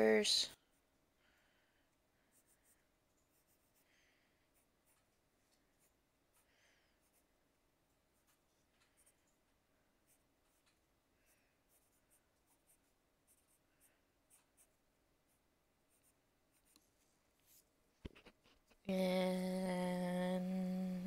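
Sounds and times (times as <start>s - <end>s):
pencil scratching on paper: 2.3s - 7.4s, 8.1s - 9.1s, 10.0s - 10.9s, 11.5s - 18.8s.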